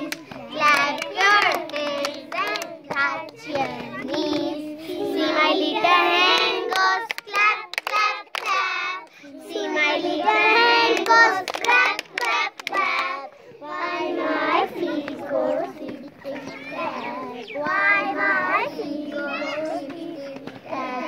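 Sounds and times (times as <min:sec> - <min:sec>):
hand claps: 0:00.0 - 0:04.5, 0:06.3 - 0:08.7, 0:10.9 - 0:13.2
children singing together: 0:00.0 - 0:21.0.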